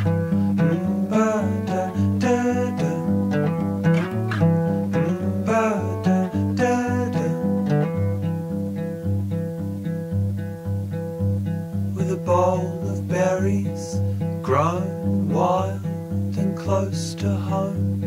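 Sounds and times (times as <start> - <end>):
gliding high guitar notes: 0.0 - 16.8
plucked acoustic guitar pattern: 0.0 - 18.0.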